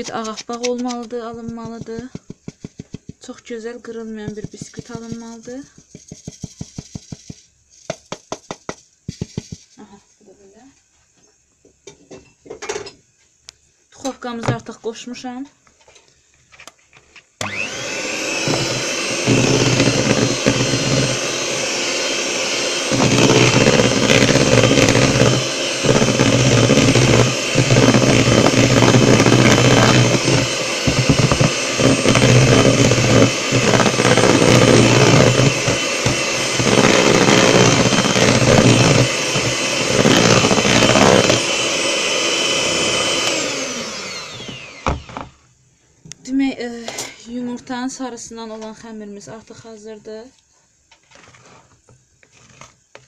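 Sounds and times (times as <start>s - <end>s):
electric hand mixer whirring: 17.4s - 45.3s.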